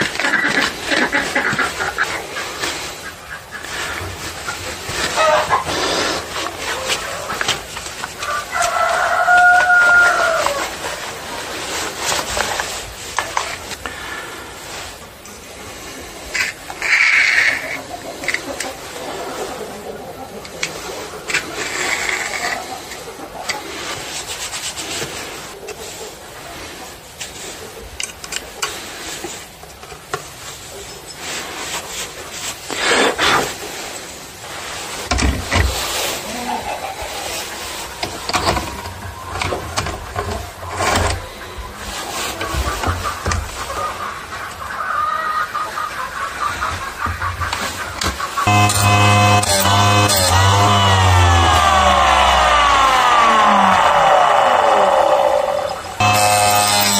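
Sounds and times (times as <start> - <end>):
rooster crowing: 8.2 - 10.7, 48.5 - 56.9
metal tool scraping guide bar: 48.5 - 52.5, 56.0 - 56.9.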